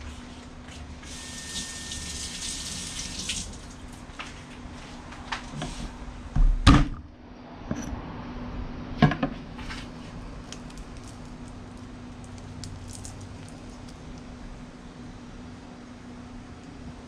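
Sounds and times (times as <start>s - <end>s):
kitchen tap running: 1.1s - 3.8s
loud thump of object set down: 6.4s - 7.0s.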